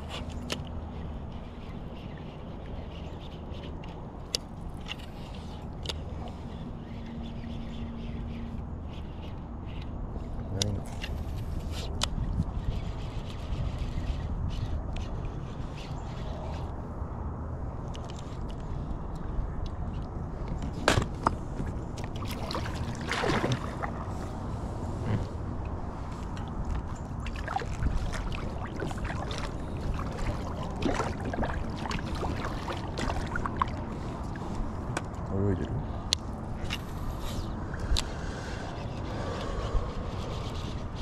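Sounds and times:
steady low rumble: 2.6s - 41.0s
water lapping against a boat: 21.1s - 41.0s.

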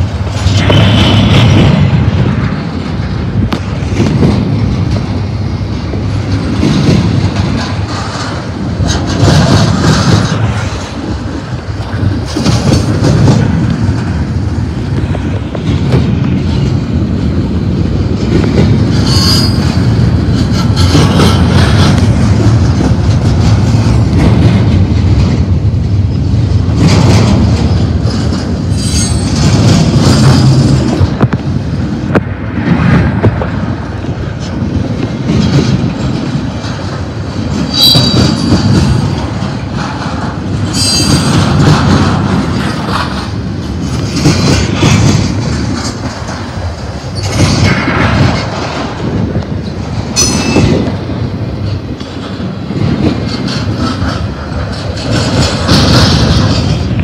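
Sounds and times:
train wheels rumbling and clacking: 0.0s - 57.0s
wheel squeals: 19.0s - 19.8s, 37.7s - 38.7s.

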